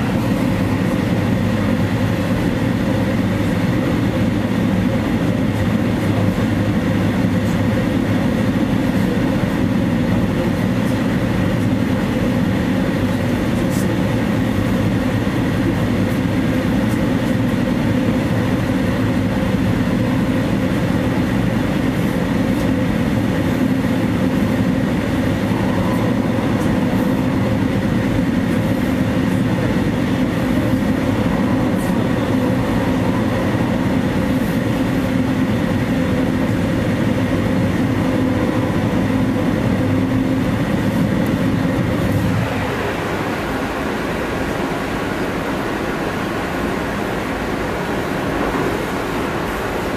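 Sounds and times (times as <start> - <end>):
train wheels rumbling on rails: 0.0 - 49.9.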